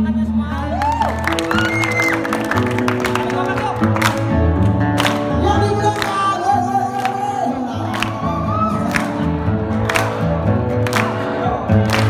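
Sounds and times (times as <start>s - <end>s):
bass: 0.0s - 12.0s
person singing: 5.2s - 9.5s.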